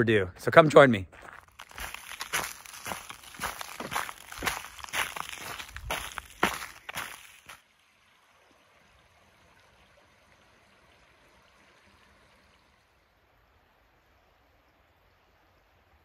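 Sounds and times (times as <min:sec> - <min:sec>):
footsteps crunching through leaves: 0:01.2 - 0:07.6.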